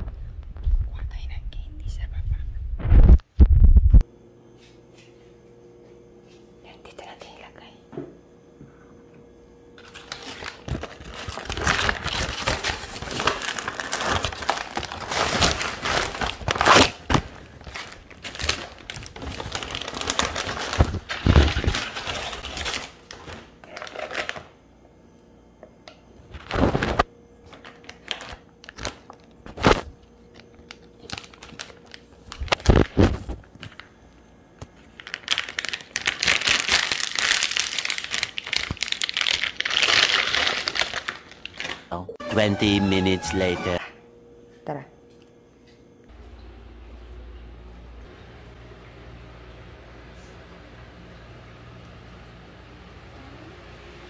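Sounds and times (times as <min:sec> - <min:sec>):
plastic wrappers crinkling: 0:09.8 - 0:24.5, 0:26.3 - 0:33.9, 0:34.8 - 0:41.9.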